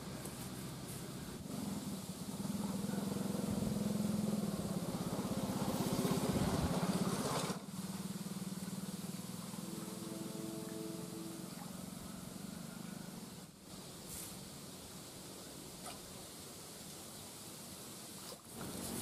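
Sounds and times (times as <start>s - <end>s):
engine pulsing hum: 0.0s - 19.0s
brief multi-pitch tone: 9.6s - 13.1s.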